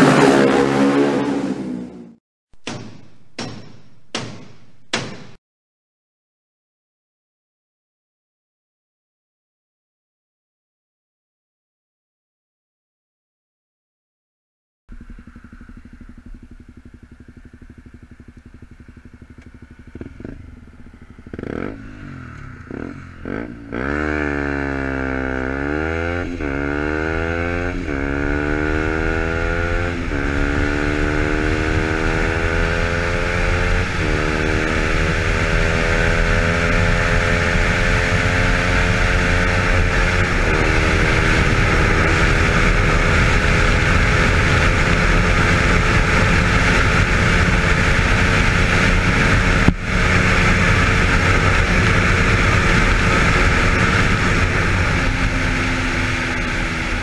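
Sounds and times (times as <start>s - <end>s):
motorcycle engine at full throttle: 0.0s - 2.2s, 14.9s - 57.0s
wind rush on microphone: 28.9s - 57.0s.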